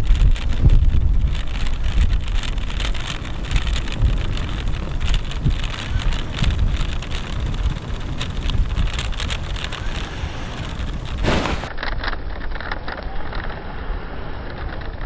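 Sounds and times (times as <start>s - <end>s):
wind buffeting microphone: 0.0s - 11.7s
brief rustle: 0.0s - 13.7s
small clicks and crackles: 0.0s - 13.7s, 14.3s - 15.0s.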